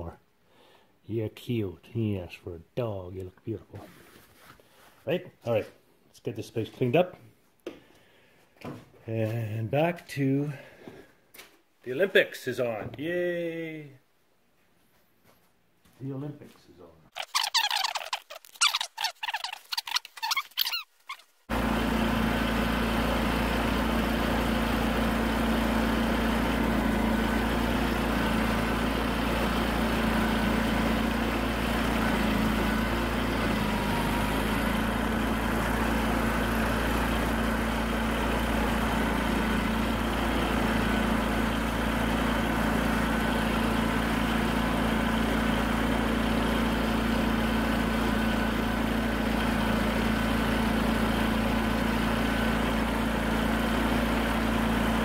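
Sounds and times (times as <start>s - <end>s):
lawn tractor engine running: 21.5s - 55.0s.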